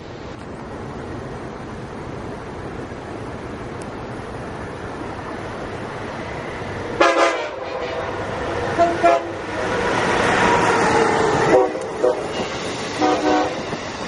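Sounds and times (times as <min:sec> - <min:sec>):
train rushing past: 0:00.0 - 0:14.0
train horn chord: 0:07.0 - 0:09.5, 0:11.4 - 0:12.4, 0:13.0 - 0:13.7.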